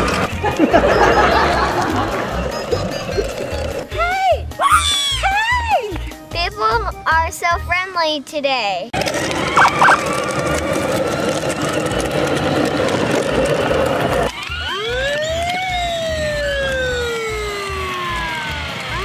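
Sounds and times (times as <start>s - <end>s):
siren wailing: 9.4s - 10.1s, 14.3s - 19.0s
short tones: 9.6s - 10.0s.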